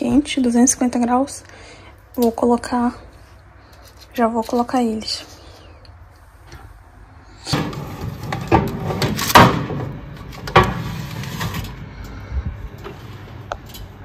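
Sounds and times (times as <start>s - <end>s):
metal baking tray clattering: 7.4s - 11.8s.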